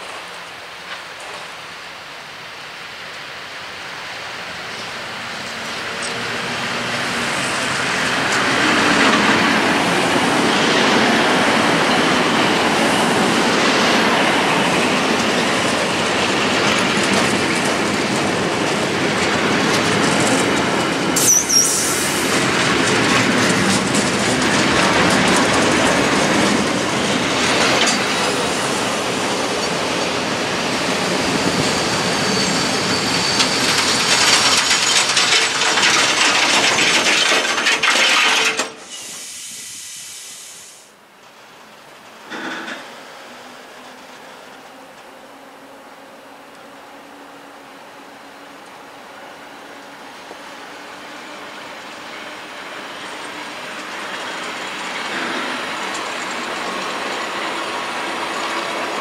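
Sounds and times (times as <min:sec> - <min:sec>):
freight train rolling past: 0:00.0 - 0:59.0
wheels clattering over rail joints: 0:04.7 - 0:21.6, 0:22.2 - 0:30.3, 0:31.3 - 0:39.1, 0:51.8 - 0:59.0
high wheel squeal: 0:21.1 - 0:22.4, 0:30.6 - 0:35.6, 0:38.7 - 0:40.6.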